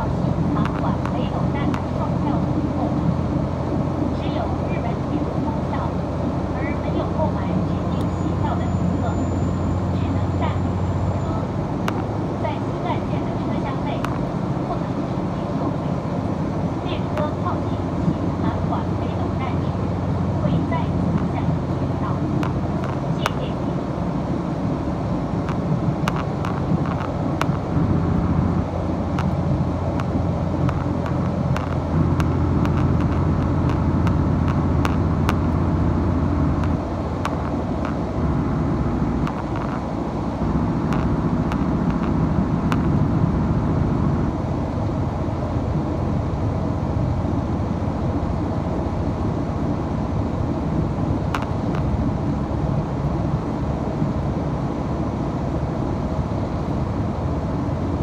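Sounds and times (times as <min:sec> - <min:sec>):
diesel train engine drone: 0:00.0 - 0:58.0
sharp clicks: 0:25.4 - 0:27.6, 0:29.1 - 0:35.6, 0:36.5 - 0:38.1, 0:39.2 - 0:39.9, 0:40.9 - 0:43.0.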